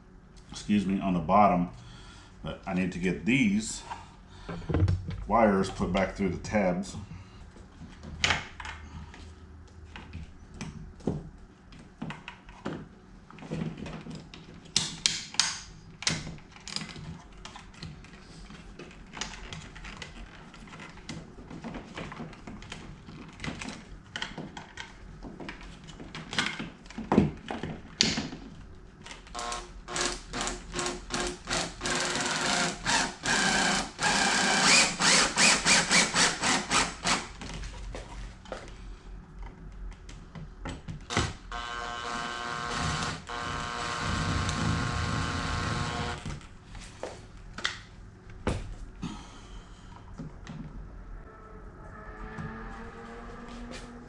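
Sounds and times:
power driver pulsing: 0:29.4 - 0:37.2, 0:41.1 - 0:46.2.

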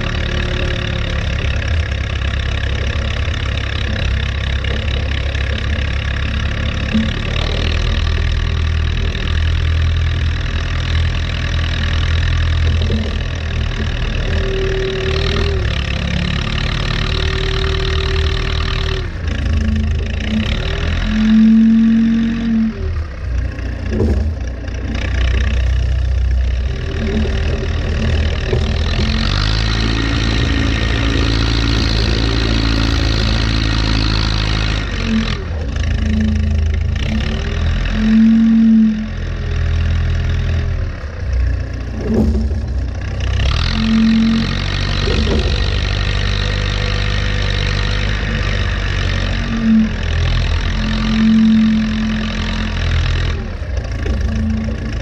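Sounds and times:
diesel engine running under load: 0:00.0 - 0:55.0
short mechanical whines: 0:41.9 - 0:46.6, 0:48.0 - 0:52.8.

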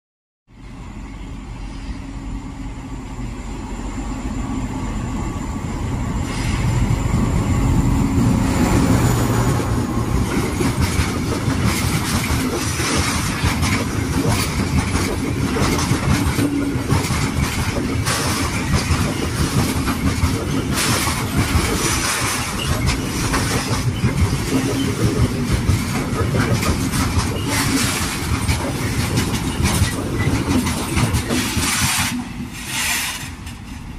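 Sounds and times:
diesel locomotive passing: 0:00.5 - 0:33.9
freight wagons rumbling: 0:06.1 - 0:33.9
wheels clattering on rails: 0:08.5 - 0:33.9.

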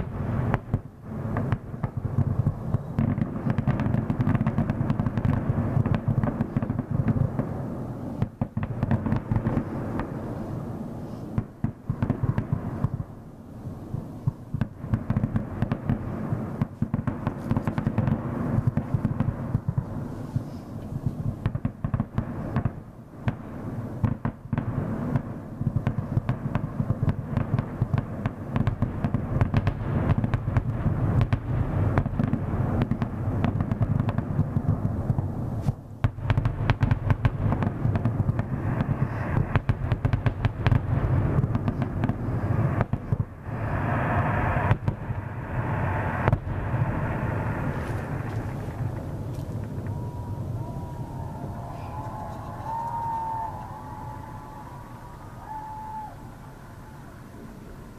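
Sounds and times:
fireworks bangs and crackles: 0:00.0 - 0:54.8, 0:55.4 - 0:56.1.

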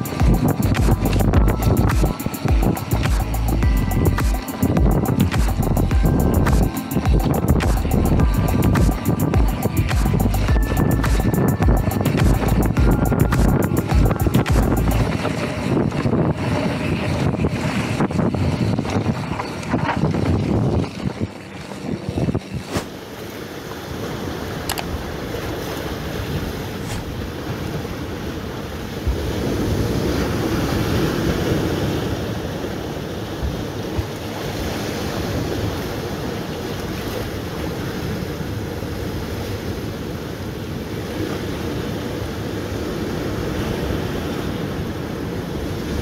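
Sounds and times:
wind on microphone: 0:00.0 - 0:23.3, 0:23.9 - 0:46.0
bike rattling over dirt trail: 0:15.0 - 0:20.8.

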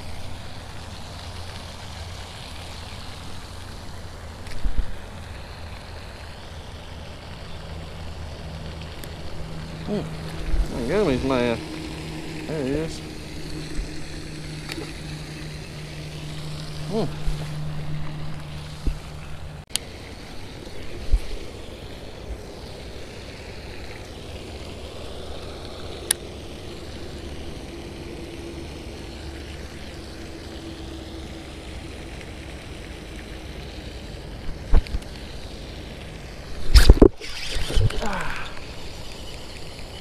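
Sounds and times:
outdoor background noise: 0:00.0 - 0:40.0
camera handling noise: 0:36.7 - 0:38.0.

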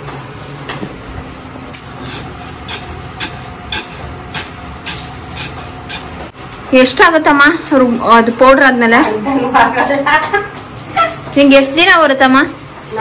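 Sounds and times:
spices rustling in pan: 0:00.3 - 0:08.3.

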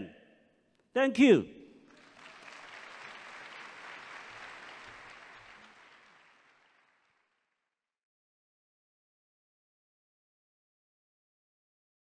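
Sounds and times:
audience applauding: 0:01.8 - 0:07.5.

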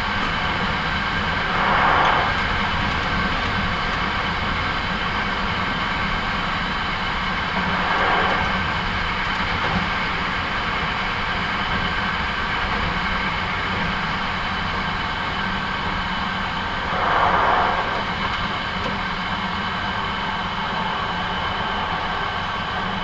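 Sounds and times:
train wheels rumbling on rail: 0:00.0 - 0:23.0
train motor hum: 0:00.1 - 0:05.0, 0:06.6 - 0:11.0, 0:16.4 - 0:23.0
brief rush of air: 0:01.2 - 0:03.7, 0:07.4 - 0:09.6, 0:16.7 - 0:18.9.

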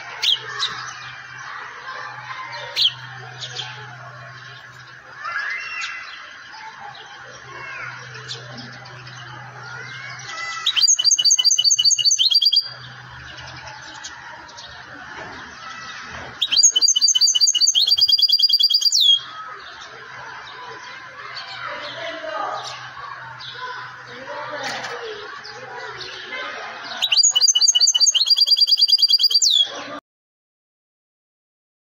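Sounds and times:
goldfinch twittering and trilling: 0:07.7 - 0:14.8, 0:16.4 - 0:19.9, 0:26.9 - 0:29.7.

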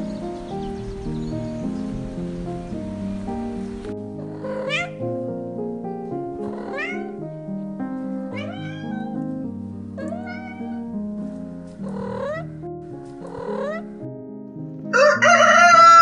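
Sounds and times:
background music: 0:00.0 - 0:16.0
cat meowing: 0:04.4 - 0:05.0, 0:06.4 - 0:07.2, 0:08.3 - 0:09.4, 0:10.0 - 0:10.9.

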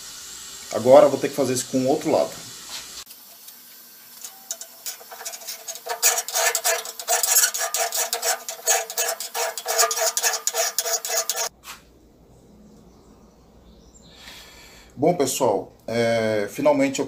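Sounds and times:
file rasping on steel blade: 0:04.2 - 0:11.5.

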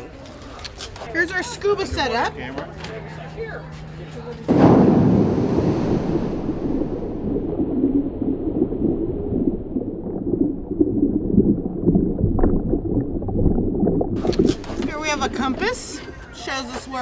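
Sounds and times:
underwater bubbles churning: 0:04.5 - 0:15.6.

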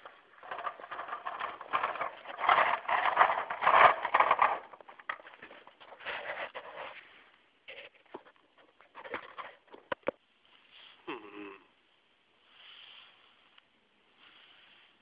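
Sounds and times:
toy car scraping on concrete: 0:00.0 - 0:07.1.

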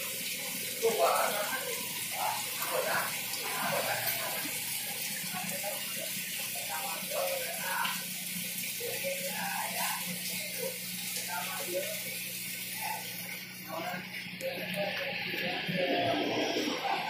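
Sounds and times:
running water from tank filters: 0:00.0 - 0:17.0
murmur of voices: 0:00.6 - 0:17.0.

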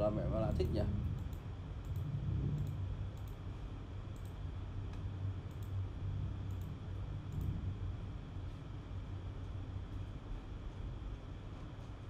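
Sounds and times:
low background hum: 0:00.0 - 0:12.0
faint clicks: 0:00.6 - 0:03.4, 0:04.1 - 0:05.8.

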